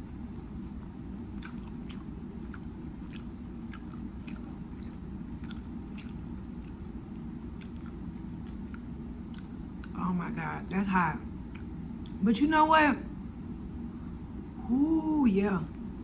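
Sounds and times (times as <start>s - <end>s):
low background hum: 0.0s - 16.0s
chewing with wet mouth clicks: 0.3s - 10.0s, 11.4s - 12.2s.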